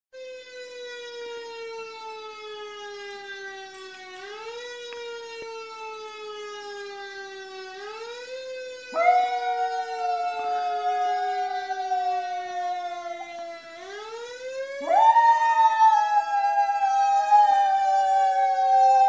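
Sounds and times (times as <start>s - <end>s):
siren wailing: 0.2s - 19.0s
dog howling: 9.0s - 13.4s, 14.8s - 19.0s.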